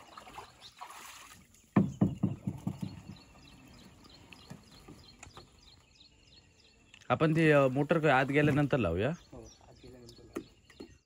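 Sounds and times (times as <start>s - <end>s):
wooden boat hollow knocks: 1.8s - 3.6s.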